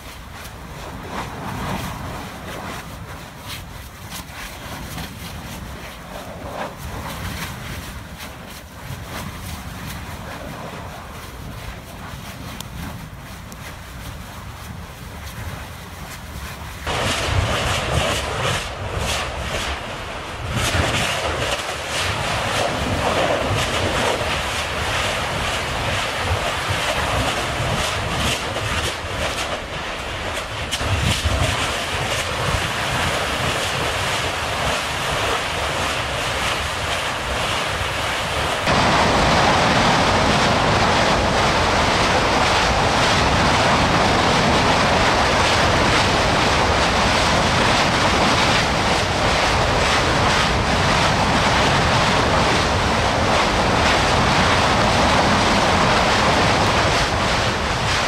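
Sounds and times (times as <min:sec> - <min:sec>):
lava fissure roaring: 0:00.0 - 0:58.0.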